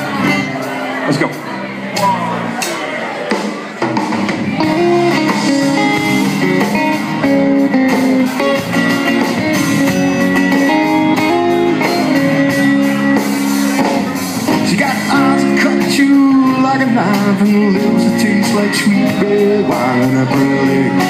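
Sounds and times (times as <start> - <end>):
live country band with guitars: 0.0 - 21.0.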